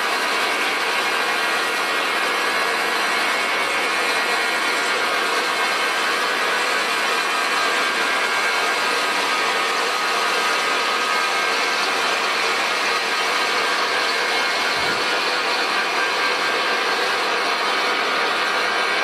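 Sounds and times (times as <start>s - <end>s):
metal lathe cutting: 0.0s - 19.0s.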